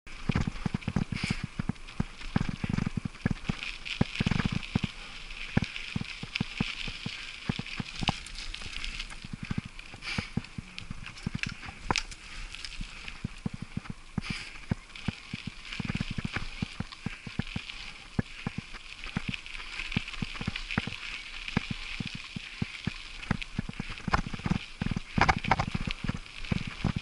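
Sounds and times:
bike rattling over bumps: 0.1 - 27.0
bike tyres crunching on gravel: 0.1 - 27.0.

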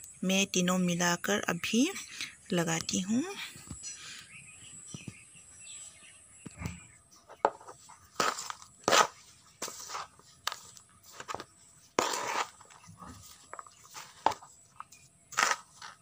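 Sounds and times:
metal trowel scraping soil in pan: 8.2 - 10.6, 12.0 - 14.5, 15.2 - 16.0.

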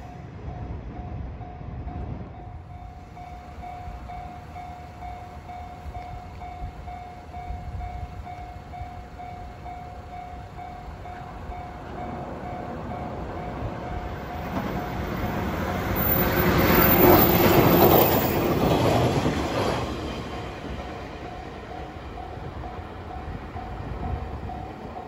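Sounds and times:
electric train passing: 0.0 - 25.0
level crossing warning bell: 0.0 - 25.0.

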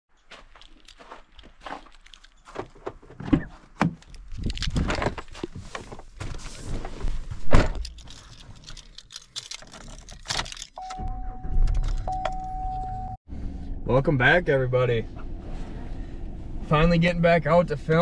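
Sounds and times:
keys jangling: 0.2 - 2.4, 7.7 - 10.9
handling knocks clicks and rustling: 0.2 - 10.9.

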